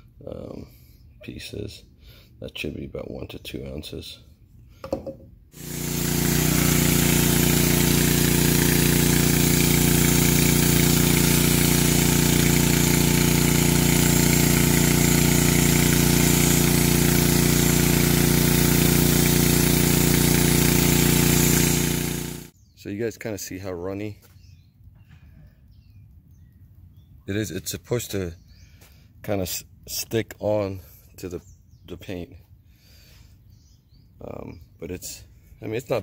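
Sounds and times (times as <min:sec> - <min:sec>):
foam cannon spraying hiss: 0:05.6 - 0:22.6
small engine running: 0:05.6 - 0:22.6.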